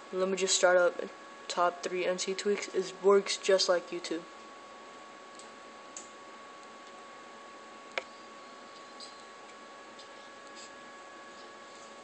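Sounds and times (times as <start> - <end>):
thin steady hum: 0.0 - 12.0.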